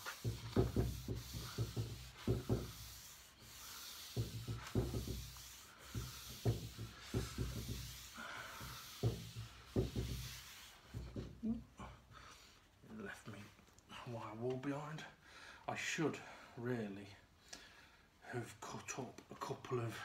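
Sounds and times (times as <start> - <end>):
steel wool rubbing on wood: 0.0 - 11.4.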